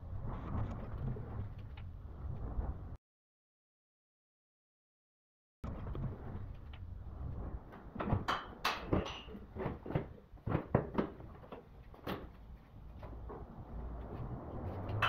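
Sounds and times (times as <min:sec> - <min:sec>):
plastic bottles knocking and clattering: 0:08.0 - 0:12.4.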